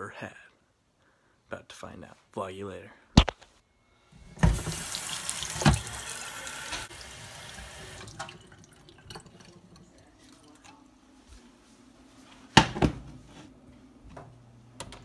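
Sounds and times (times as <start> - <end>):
faucet running into sink: 4.4 - 10.8.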